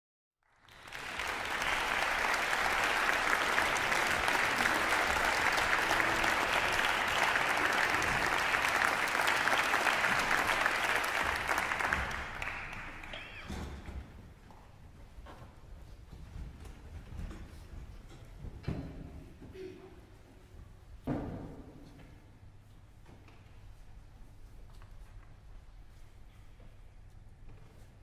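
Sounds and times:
audience applauding: 0:00.4 - 0:13.6.

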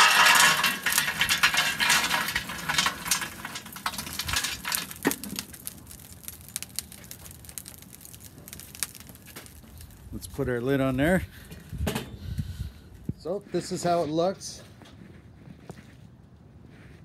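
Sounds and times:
charcoal clattering into metal basket: 0:00.0 - 0:06.6.

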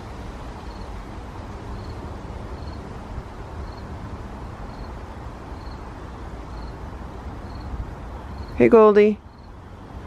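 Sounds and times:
cricket chirping: 0:00.6 - 0:00.9, 0:01.7 - 0:02.0, 0:02.6 - 0:02.8, 0:03.6 - 0:03.9, 0:04.6 - 0:05.9, 0:06.5 - 0:06.8, 0:07.4 - 0:08.7, 0:09.3 - 0:09.6.

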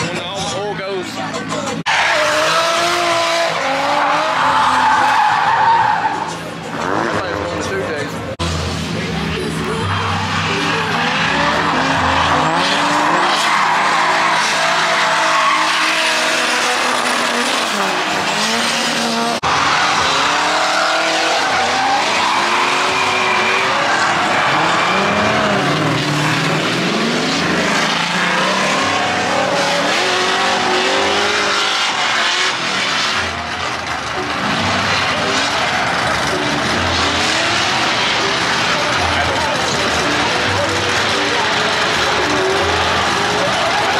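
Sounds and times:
car engines revving: 0:00.0 - 0:43.9
tyres squealing: 0:01.8 - 0:07.7, 0:09.5 - 0:43.9.

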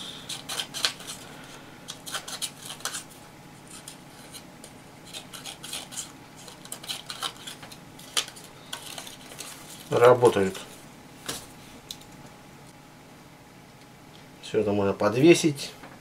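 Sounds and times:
scissors snipping paper: 0:00.3 - 0:01.2, 0:01.9 - 0:03.1, 0:05.1 - 0:10.0.

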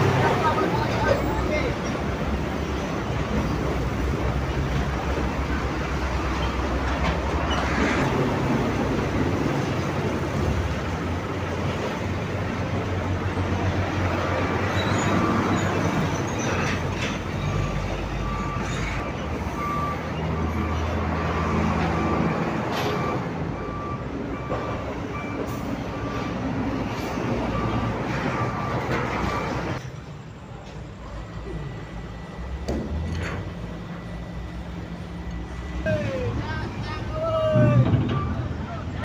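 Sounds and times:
truck diesel engine under load: 0:00.0 - 0:39.0
reversing alarm beeping: 0:17.4 - 0:29.8, 0:31.1 - 0:39.0.

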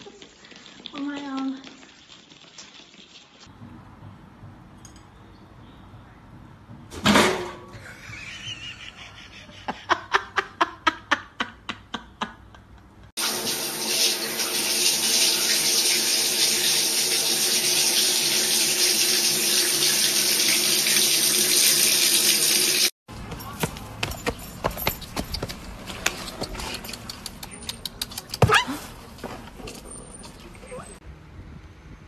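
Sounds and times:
faucet running into sink: 0:13.2 - 0:22.9.

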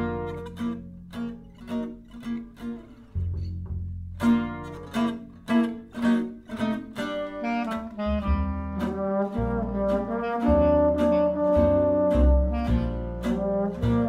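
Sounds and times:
plucked double bass: 0:00.0 - 0:14.0
strummed rhythm guitar: 0:00.0 - 0:14.0
swing jazz band playing: 0:04.2 - 0:14.0
clarinet: 0:04.6 - 0:14.0
trombone: 0:07.2 - 0:14.0.

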